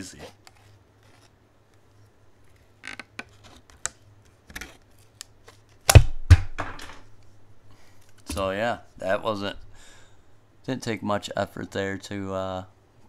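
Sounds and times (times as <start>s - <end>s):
loud knocks: 5.9s - 7.0s.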